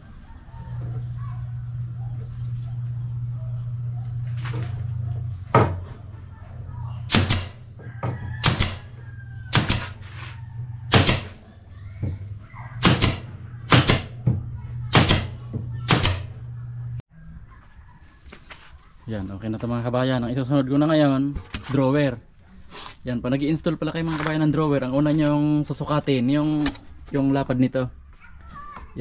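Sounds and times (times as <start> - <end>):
steady low hum: 0.0 - 17.0
nail gun firing into plywood: 7.1 - 7.6, 8.4 - 10.0, 10.9 - 11.5, 12.8 - 14.3, 14.9 - 16.4.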